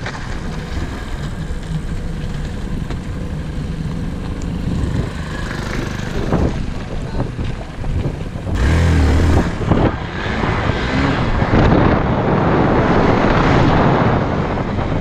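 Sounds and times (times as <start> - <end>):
clatter on gravel: 0.0 - 8.4
motorcycle engine at low speed: 0.0 - 15.0.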